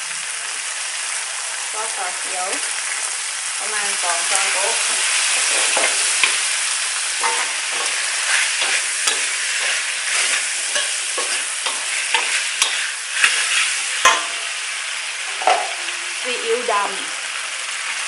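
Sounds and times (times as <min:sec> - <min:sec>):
meat sizzling in a wok: 0:00.0 - 0:18.0
metal spatula scraping wok: 0:04.3 - 0:16.2.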